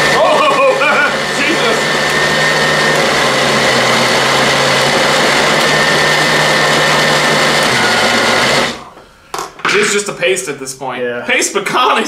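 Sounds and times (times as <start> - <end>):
blender running: 0.0 - 8.9.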